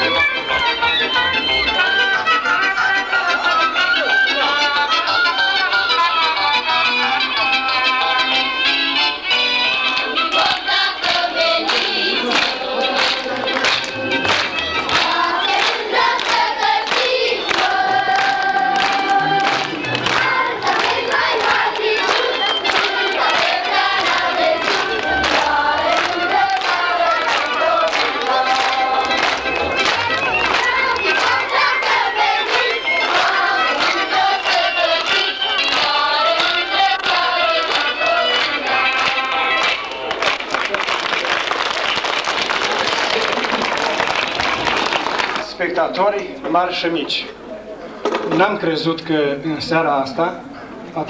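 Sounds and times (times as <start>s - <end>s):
instrumental music with beat: 0.0s - 40.1s
group singing: 9.6s - 40.2s.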